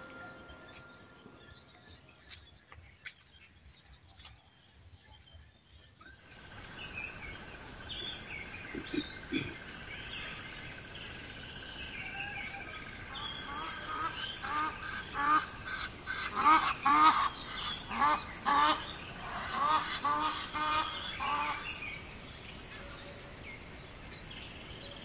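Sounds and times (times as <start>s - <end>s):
music: 0.0s - 2.0s
steady high tone: 0.0s - 2.2s
small birds chirping: 0.0s - 25.0s.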